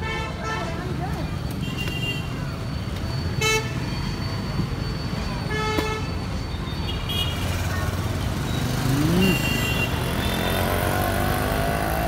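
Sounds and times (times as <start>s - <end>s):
scooters and cars passing: 0.3s - 12.0s
engine note rising: 8.7s - 9.4s.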